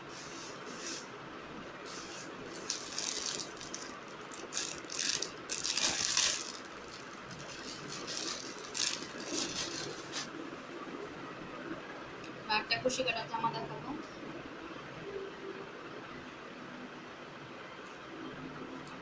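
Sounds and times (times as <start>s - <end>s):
dress fabric rustling: 1.8s - 10.4s.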